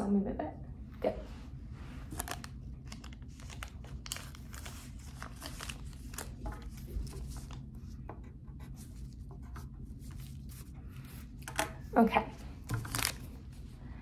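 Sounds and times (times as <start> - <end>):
low room hum: 0.0 - 14.0
paper wrapper crinkling: 2.1 - 7.7, 12.6 - 13.7.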